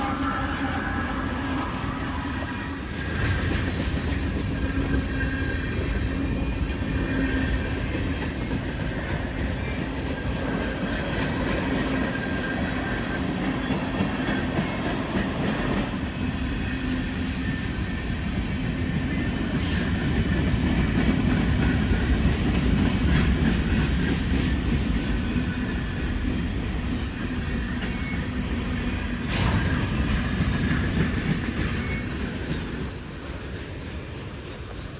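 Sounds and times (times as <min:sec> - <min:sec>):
railroad cars rumbling past: 0:00.0 - 0:34.9
wheels clicking over rail joints: 0:07.6 - 0:15.6.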